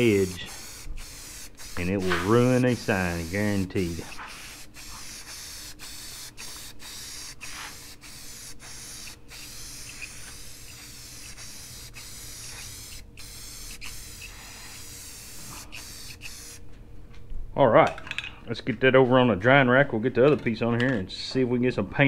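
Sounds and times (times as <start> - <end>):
spray paint can hissing: 0.0 - 16.6.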